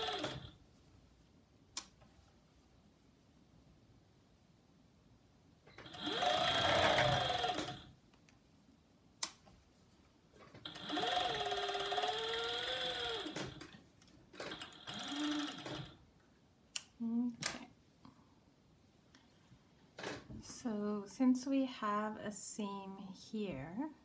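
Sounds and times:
overlocker sewing machine stitching: 0.0s - 0.6s, 5.7s - 7.9s, 10.5s - 13.8s, 14.4s - 16.0s.

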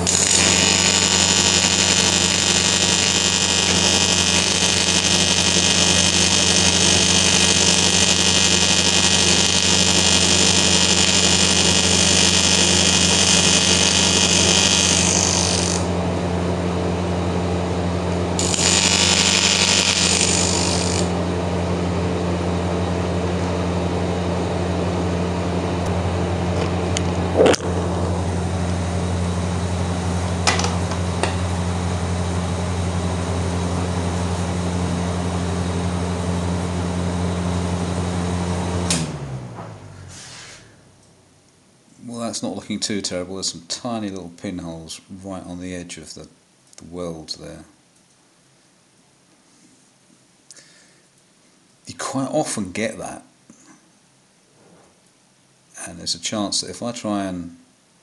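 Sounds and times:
welder arc buzzing: 0.0s - 41.1s
low hum: 15.8s - 37.9s.

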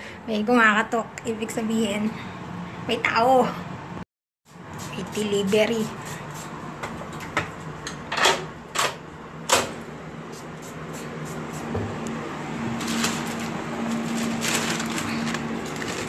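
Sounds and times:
plastic bag rustling: 12.7s - 16.0s.

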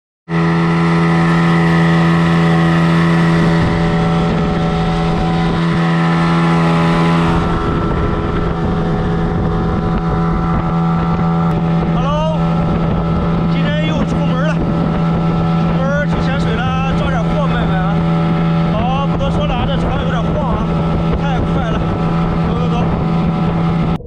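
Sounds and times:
outboard motors droning: 0.3s - 24.0s.

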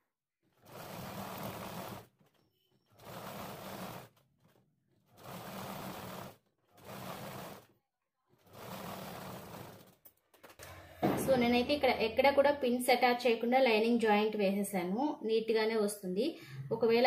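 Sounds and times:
sewing machine stitching: 0.4s - 10.8s.

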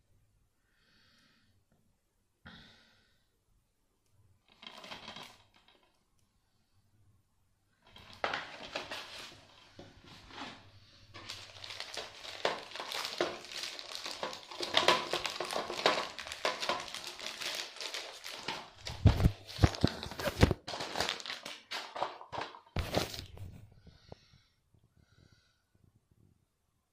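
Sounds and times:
paper envelope crinkling: 7.9s - 23.5s.

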